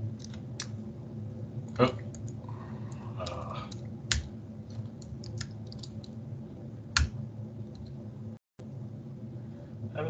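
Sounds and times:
computer keyboard key clicks: 5.0s - 6.1s.

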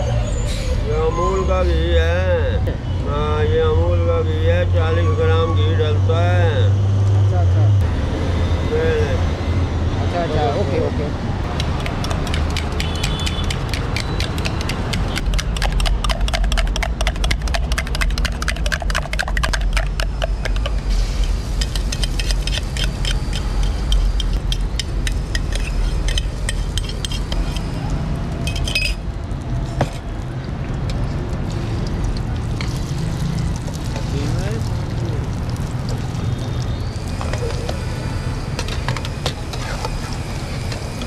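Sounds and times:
spoon clinking in steel tumbler: 28.5s - 29.0s.

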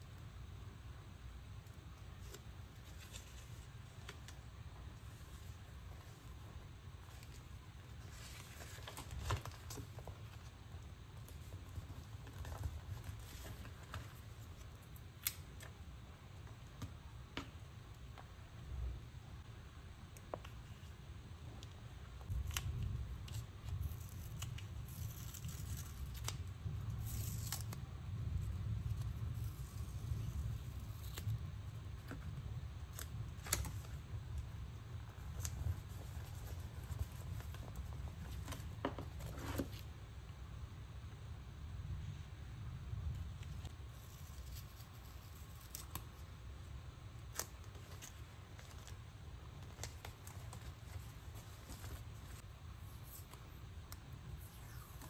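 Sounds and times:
tape peeling and rustling: 1.6s - 15.8s, 22.2s - 39.9s, 43.4s - 46.4s, 47.2s - 55.0s
paper tape crinkling and clicking: 21.6s - 31.4s, 43.5s - 46.3s, 47.2s - 55.0s.

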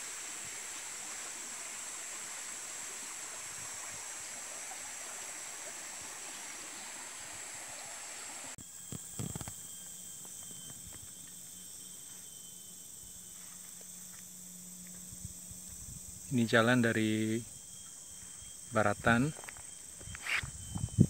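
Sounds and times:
stream rushing over rocks: 0.0s - 8.6s
insect buzzing: 0.0s - 21.0s.

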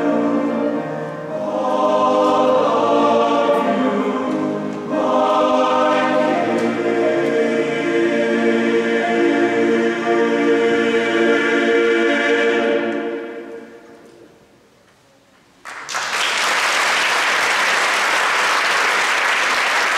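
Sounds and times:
men's chorus singing a chord: 0.0s - 14.0s
audience applause: 15.6s - 19.9s.

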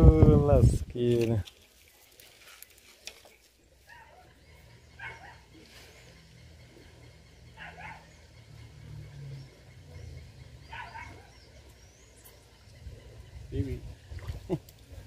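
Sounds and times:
low steady hum: 1.4s - 15.0s
faint animal calls: 3.8s - 13.9s.

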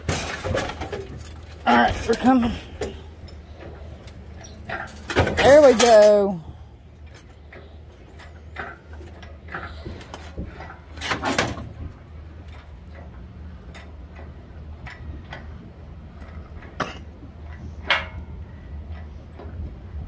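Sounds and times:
metal scraping rattle: 0.0s - 6.4s.

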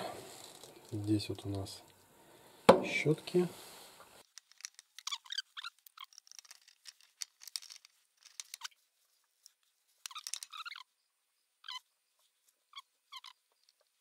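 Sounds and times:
small metal and plastic parts clicking: 4.2s - 8.8s, 9.4s - 10.8s.

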